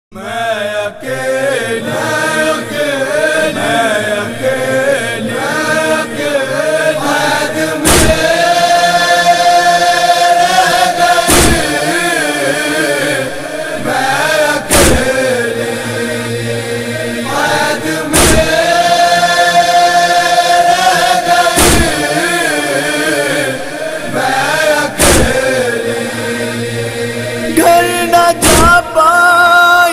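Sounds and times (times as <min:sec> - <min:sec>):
person chanting a lament: 0:00.1 - 0:29.9
sharp thumps: 0:07.8 - 0:08.3, 0:11.2 - 0:11.8, 0:14.7 - 0:15.2, 0:18.1 - 0:18.7, 0:21.5 - 0:22.2, 0:24.4 - 0:25.6, 0:28.4 - 0:28.9.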